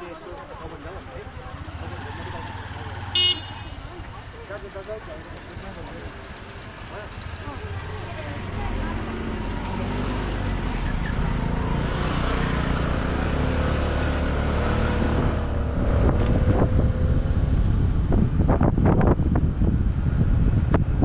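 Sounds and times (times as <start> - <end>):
scooter engine running: 1.3 - 11.8
gusty wind noise on microphone: 14.9 - 21.0.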